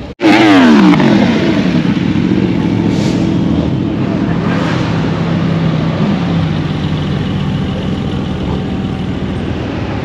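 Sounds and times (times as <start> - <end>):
sports car engine running: 0.2 - 4.4.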